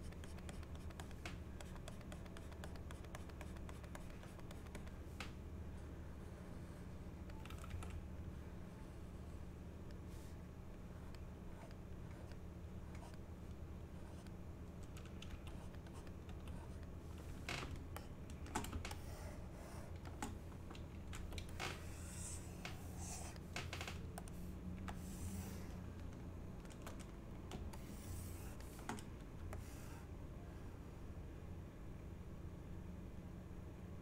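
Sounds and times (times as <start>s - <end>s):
low steady hum: 0.0s - 34.0s
keyboard keys clicking: 7.3s - 8.0s.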